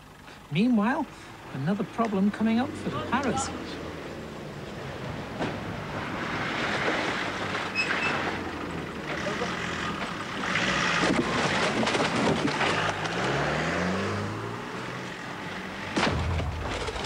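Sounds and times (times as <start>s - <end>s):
off-road vehicle engine running: 8.2s - 17.0s
rattling crackling rush: 10.0s - 13.3s, 16.0s - 17.0s.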